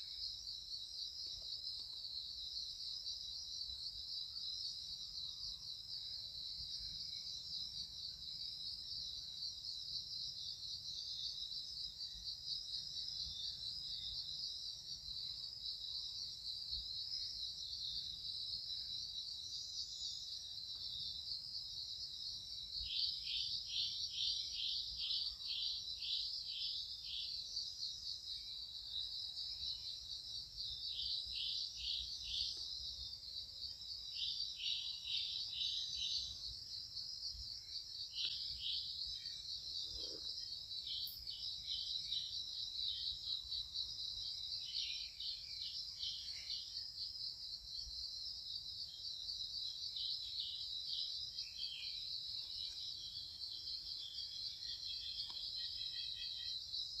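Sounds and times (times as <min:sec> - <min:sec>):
insect chorus buzzing: 0:00.0 - 0:57.0.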